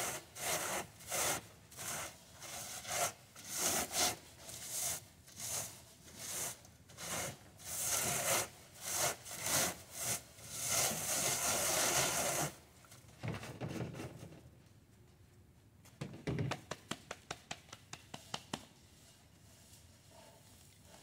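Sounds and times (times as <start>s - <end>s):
seed heads rubbed on wire mesh: 0.0s - 12.6s.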